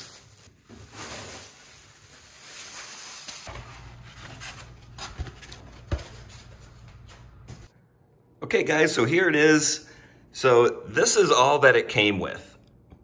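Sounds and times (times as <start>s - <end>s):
plastic wrap rustling: 0.0s - 7.1s.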